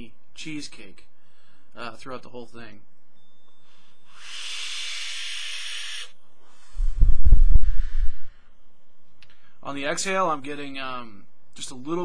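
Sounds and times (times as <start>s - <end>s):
exhale blowing on microphone: 3.7s - 8.5s
e-cigarette coil hissing: 4.1s - 8.4s.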